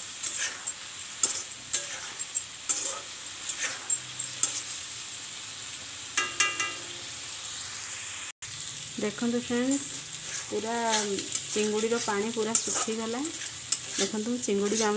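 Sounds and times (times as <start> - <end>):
metal spatula scraping pan: 0.0 - 4.8, 9.7 - 14.9
prawns sizzling in oil: 0.0 - 14.9
spatula clanking against pan: 0.2 - 4.7, 6.2 - 6.9, 10.9 - 14.9.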